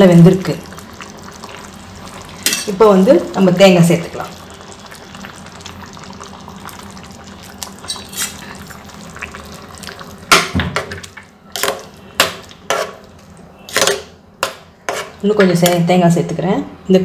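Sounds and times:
gravy bubbling: 0:00.0 - 0:13.6.

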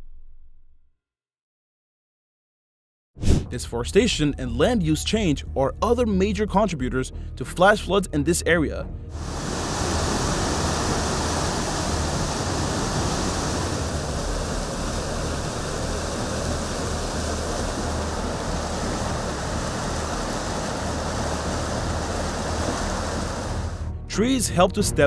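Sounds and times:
floodwater rushing: 0:09.1 - 0:24.0.

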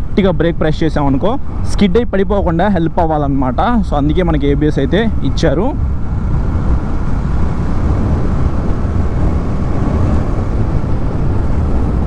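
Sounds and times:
wind noise: 0:00.0 - 0:12.0
motorcycle engine cruising: 0:04.7 - 0:12.0.

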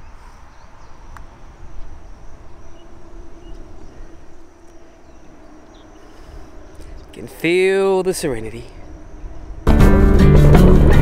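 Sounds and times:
faint steady hum: 0:00.0 - 0:09.7
high insect drone: 0:00.0 - 0:11.0
wind rumble on microphone: 0:00.0 - 0:11.0.

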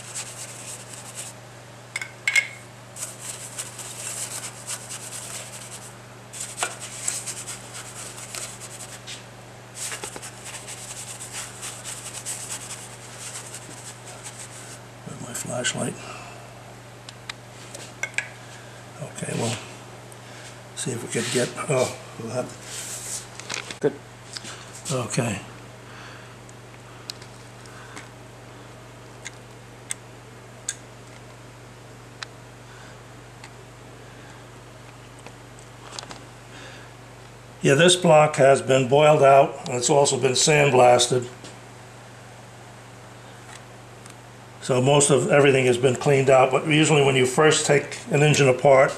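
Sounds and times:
wet scratchy brush strokes: 0:00.0 - 0:01.4, 0:03.0 - 0:09.2, 0:09.8 - 0:14.8, 0:21.1 - 0:22.0, 0:22.6 - 0:23.3
steady low hum: 0:00.0 - 0:48.9.

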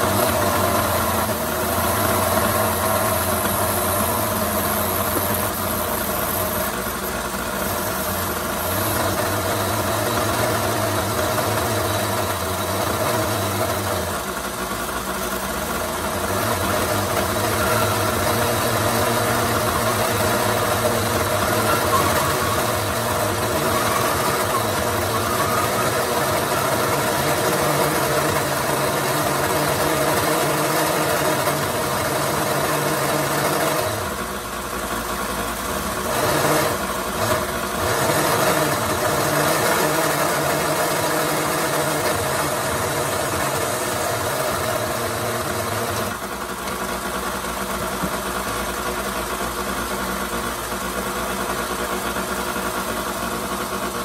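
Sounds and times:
belt sander grinding plastic: 0:16.2 - 0:34.0.

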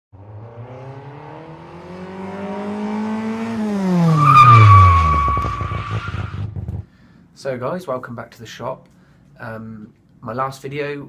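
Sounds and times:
engine revving: 0:00.1 - 0:06.7
high squeal: 0:04.1 - 0:06.4.

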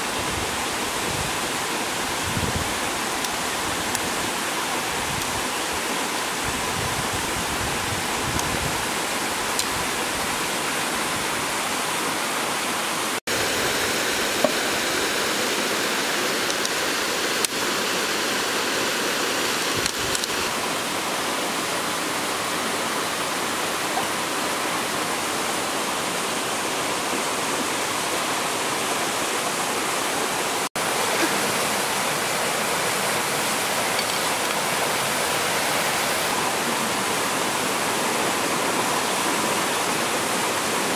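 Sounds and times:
stream rushing over stones: 0:00.0 - 0:40.9.

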